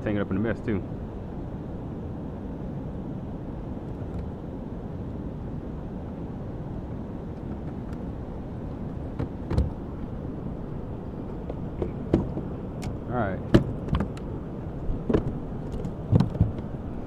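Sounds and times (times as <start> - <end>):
sharp knocks: 11.8 - 12.5, 13.5 - 14.1, 16.1 - 16.6.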